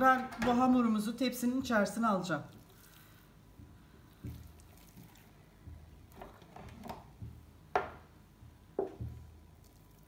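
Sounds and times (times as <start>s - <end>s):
dough rustling: 1.6s - 7.6s.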